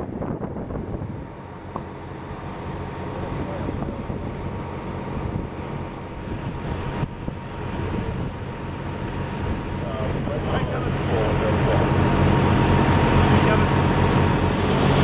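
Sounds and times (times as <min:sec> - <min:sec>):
wind on microphone: 0:00.0 - 0:01.8, 0:03.2 - 0:15.0
vehicle engine idling: 0:00.0 - 0:15.0.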